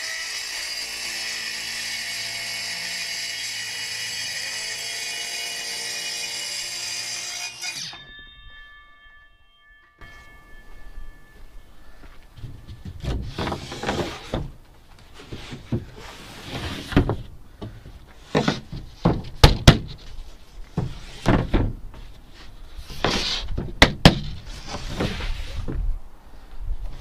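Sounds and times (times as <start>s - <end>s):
boards knocking and thudding: 12.4s - 22.2s, 23.0s - 25.8s
boards scraping: 12.4s - 25.9s.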